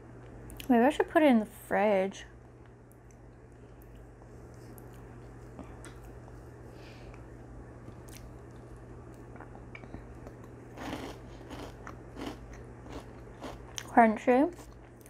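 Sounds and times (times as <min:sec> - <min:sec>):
chewing and crunching: 0:02.9 - 0:06.3, 0:07.9 - 0:15.0.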